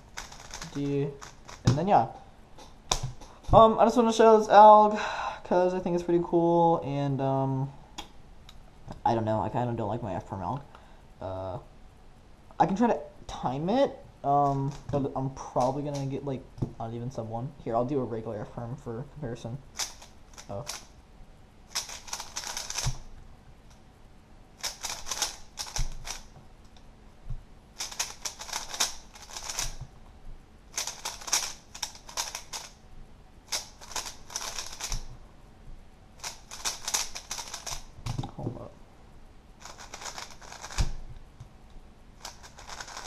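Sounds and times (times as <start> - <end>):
plastic cube clicking: 21.7 - 23.0, 24.6 - 26.3, 27.8 - 29.8, 30.8 - 32.8, 33.5 - 35.1, 36.2 - 38.3, 39.6 - 41.0, 42.2 - 43.0.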